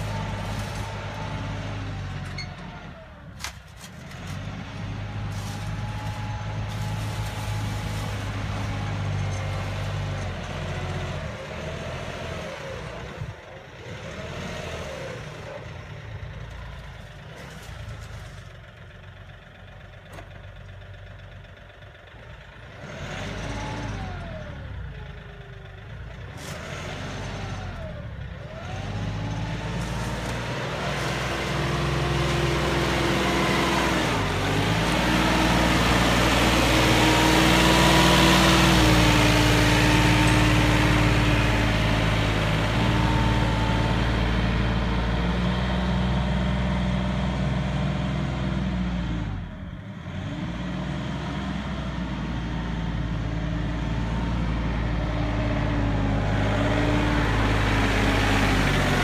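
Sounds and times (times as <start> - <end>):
blade scraping through gravel: 0.0 - 1.5, 5.1 - 10.5, 17.3 - 18.5, 29.4 - 34.1
tractor diesel engine under load: 0.0 - 59.0.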